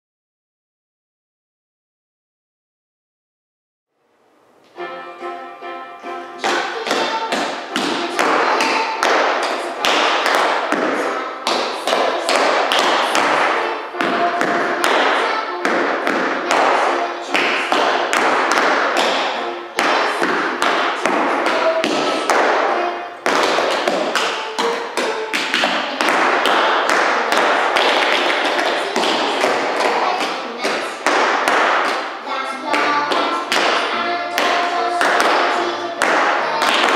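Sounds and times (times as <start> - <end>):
background music: 4.3 - 36.9
tap shoes on hard floor: 6.4 - 36.9.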